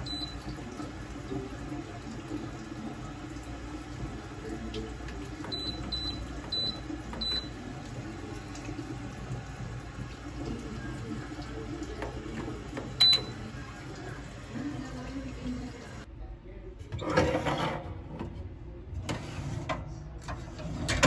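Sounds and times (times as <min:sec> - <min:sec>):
oven control panel beeping: 0:00.0 - 0:00.6, 0:05.4 - 0:07.7, 0:12.7 - 0:13.6.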